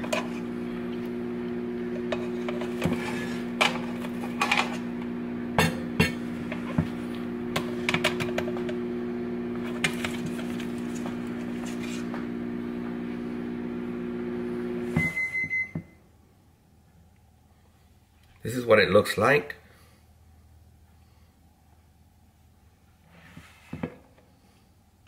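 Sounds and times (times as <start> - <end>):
appliance hum: 0.0 - 18.4.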